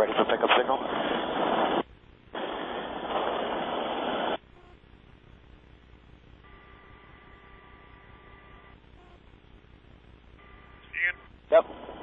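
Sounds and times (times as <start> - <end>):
faint low hiss: 0.0 - 12.0
faint steady tones: 0.0 - 12.0
intercom rushing hiss: 10.4 - 12.0.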